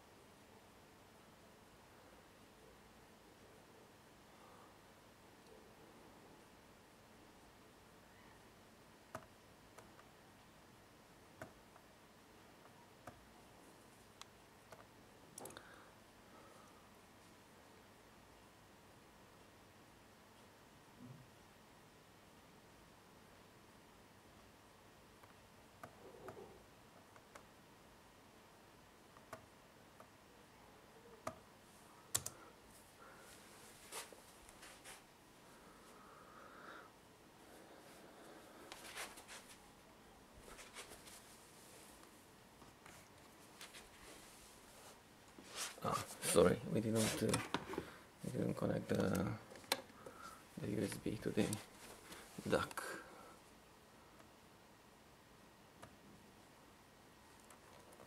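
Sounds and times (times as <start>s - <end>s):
faint steady hiss: 0.0s - 58.0s
laptop clicks: 32.1s - 32.4s
soft brushing sound: 32.7s - 36.0s, 37.4s - 39.8s, 40.4s - 47.5s.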